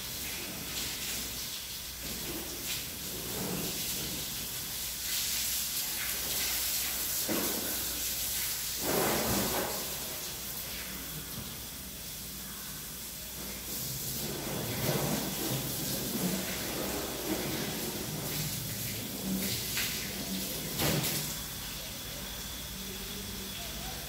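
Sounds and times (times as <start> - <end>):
hose water spraying and splashing: 0.0 - 24.0.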